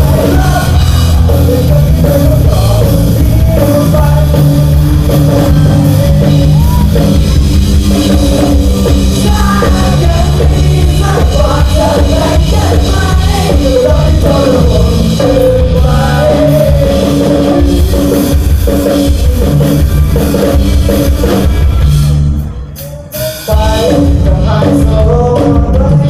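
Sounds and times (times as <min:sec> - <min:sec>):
vocalists singing: 0:00.0 - 0:07.2, 0:07.9 - 0:18.0, 0:23.5 - 0:26.0
drums: 0:00.0 - 0:26.0
live rock band playing: 0:00.0 - 0:26.0.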